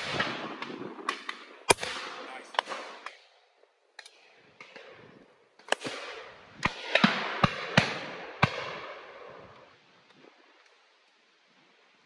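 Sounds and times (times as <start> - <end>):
shotgun shots: 0.0 - 3.2, 5.7 - 9.0
faint distant shots: 4.6 - 9.2.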